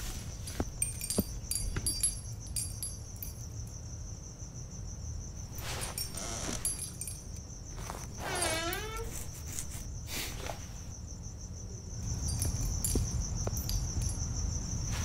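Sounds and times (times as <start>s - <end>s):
rustle: 0.0s - 3.4s, 5.5s - 11.0s, 12.1s - 15.0s
crickets chirping: 0.0s - 15.0s
small clicks and jingles: 0.4s - 3.9s, 5.5s - 9.8s, 12.0s - 14.6s.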